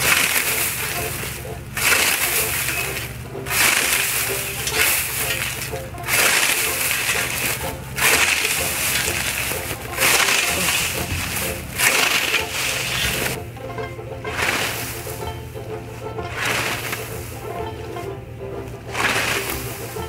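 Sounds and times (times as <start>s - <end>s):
scythe blade swishing: 0.0s - 13.4s, 18.9s - 20.0s
dry stalks crunching: 0.0s - 20.0s.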